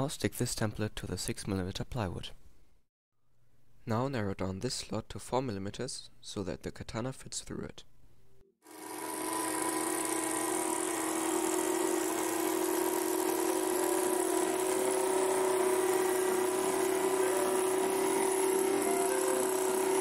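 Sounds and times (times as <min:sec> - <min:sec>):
benchtop power saw cutting plywood: 0:08.6 - 0:20.0.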